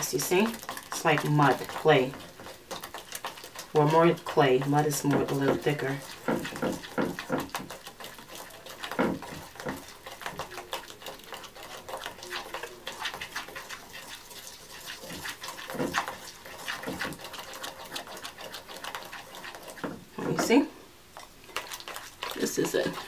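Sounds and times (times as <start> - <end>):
knife stirring wet clay paste: 0.0 - 23.0.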